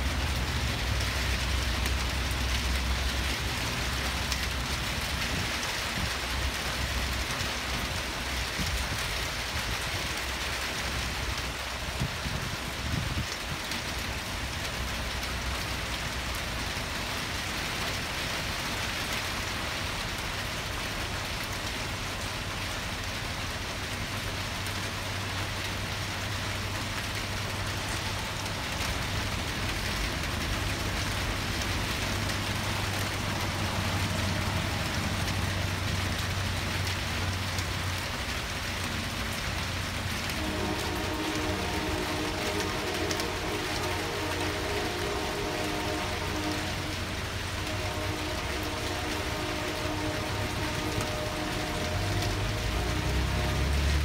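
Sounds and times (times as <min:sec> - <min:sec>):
heavy rain falling: 0:00.0 - 0:54.0
locomotive air horn: 0:23.3 - 0:36.3, 0:40.0 - 0:54.0.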